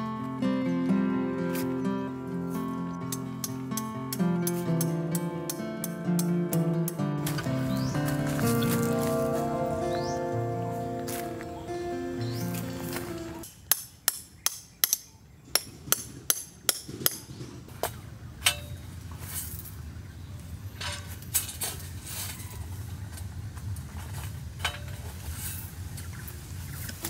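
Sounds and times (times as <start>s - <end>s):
background music: 0.0s - 13.4s
hammer striking metal tent stake: 3.1s - 7.9s, 13.4s - 17.3s, 18.4s - 18.8s.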